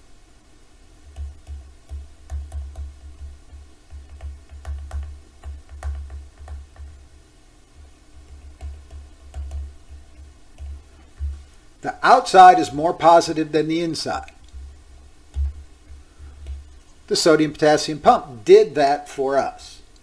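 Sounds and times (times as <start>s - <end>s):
stylus tapping on touchscreen: 1.1s - 7.0s, 8.2s - 11.4s, 15.3s - 16.7s.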